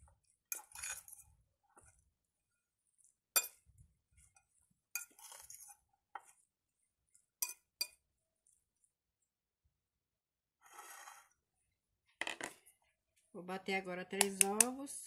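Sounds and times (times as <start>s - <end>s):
fork clinking against glass bowl: 3.4s - 3.6s, 7.4s - 8.0s.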